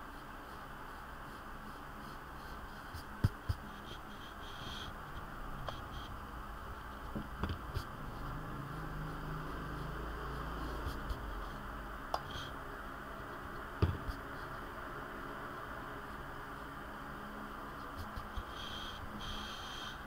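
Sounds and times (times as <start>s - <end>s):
steady hiss: 0.0s - 20.0s
pencil tapping and scraping paper: 1.3s - 6.1s, 7.0s - 12.6s, 13.2s - 14.6s, 17.6s - 19.8s.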